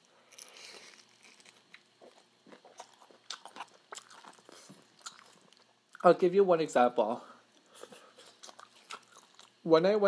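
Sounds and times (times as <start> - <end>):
crispy fried chicken crunching: 0.0 - 6.1, 8.2 - 9.6.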